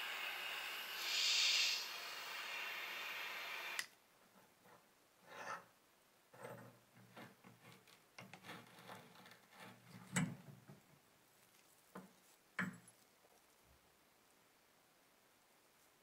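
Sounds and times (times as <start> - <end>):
metal scraping and rubbing: 6.4 - 10.4
metal clicks and knocks: 6.5 - 10.9.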